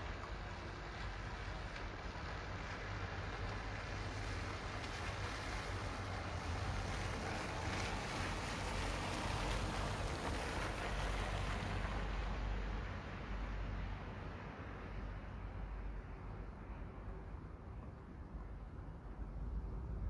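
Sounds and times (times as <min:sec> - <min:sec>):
car tyres hissing on wet road: 0:00.0 - 0:15.8.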